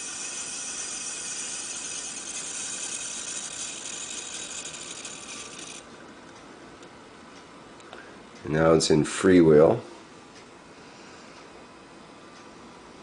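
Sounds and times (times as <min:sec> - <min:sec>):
wire brush hissing rattle: 0:00.0 - 0:05.5
rotor whirring: 0:00.0 - 0:05.9.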